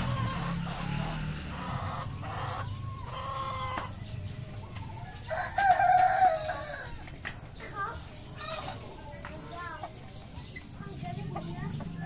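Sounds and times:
chicken clucking: 0.0s - 12.0s
rooster crowing: 5.2s - 7.0s.

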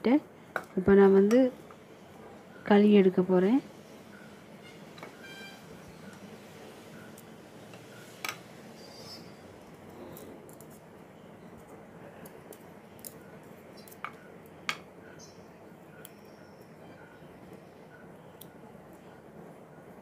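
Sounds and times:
faint background noise: 0.0s - 20.0s.

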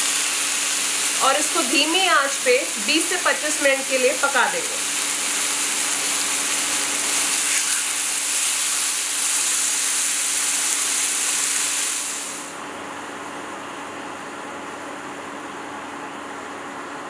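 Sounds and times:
chicken sizzling on grill pan: 0.0s - 12.6s.

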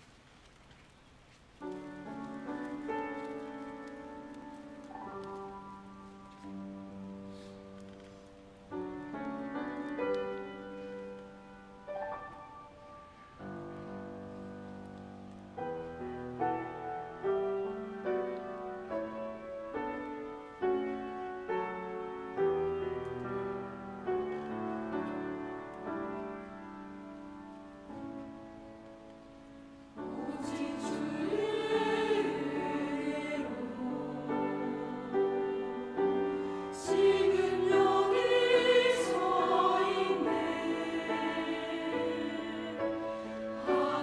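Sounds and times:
grand piano playing: 1.6s - 44.0s.

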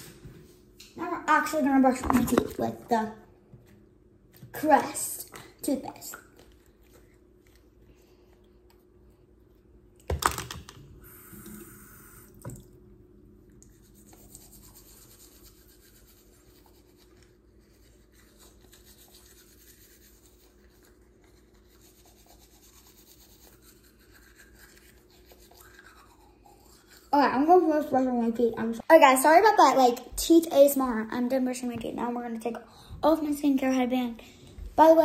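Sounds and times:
toothbrush scrubbing teeth: 13.4s - 28.4s.

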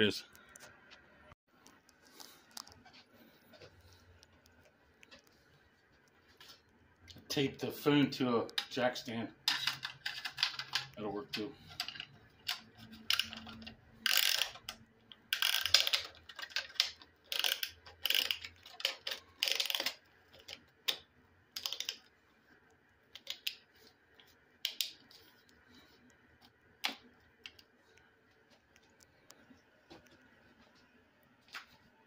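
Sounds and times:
ratchet clicking: 13.1s - 14.8s.

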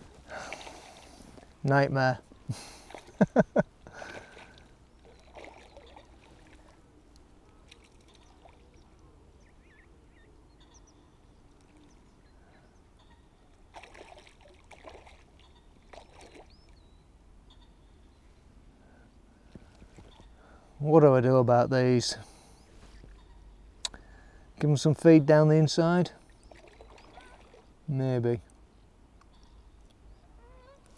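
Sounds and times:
water lapping and splashing: 0.0s - 1.6s, 2.6s - 6.9s, 7.5s - 9.0s, 13.6s - 16.7s, 26.2s - 27.8s.

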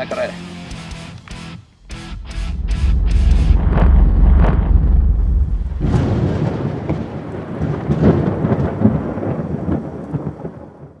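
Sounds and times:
thunder rumble: 1.8s - 11.0s
thunder crack: 1.9s - 11.0s.

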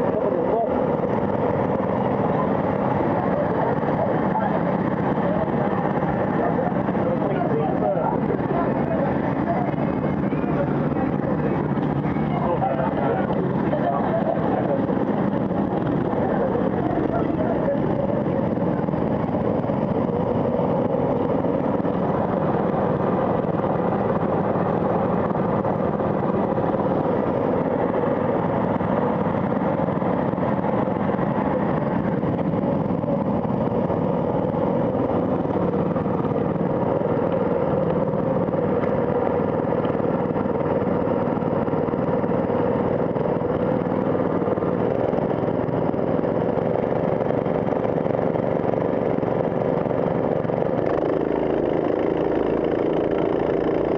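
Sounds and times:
go-kart engine idling: 0.0s - 53.9s.

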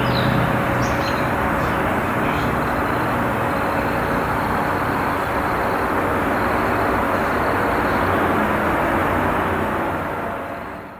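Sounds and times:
city traffic noise: 0.0s - 10.9s.

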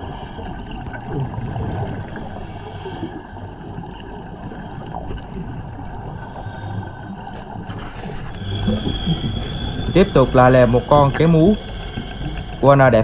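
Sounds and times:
underwater low drone: 0.0s - 13.0s.

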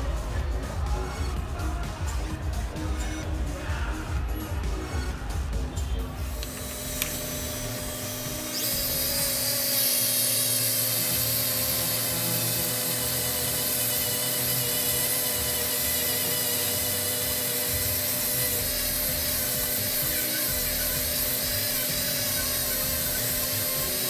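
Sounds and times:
rotary tool motor whine: 2.1s - 3.3s, 3.9s - 24.0s
stone bit grinding hiss: 6.2s - 24.0s.

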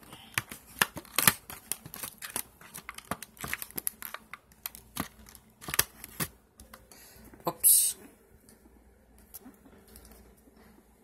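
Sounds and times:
plastic blister packaging crinkling: 0.0s - 6.8s.

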